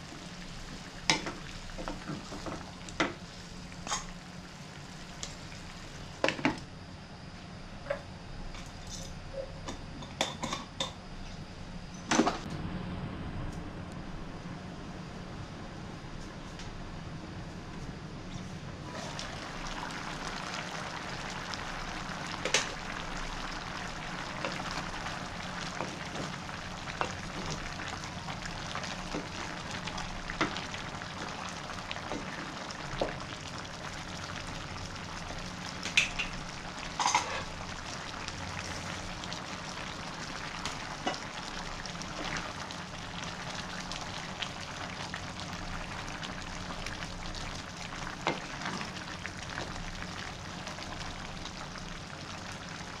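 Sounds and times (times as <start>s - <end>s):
stew sizzling and bubbling: 0.0s - 6.7s, 18.3s - 53.0s.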